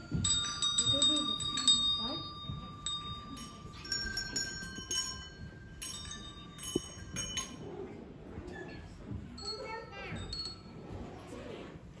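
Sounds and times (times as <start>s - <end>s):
bells struck and ringing: 0.0s - 7.8s.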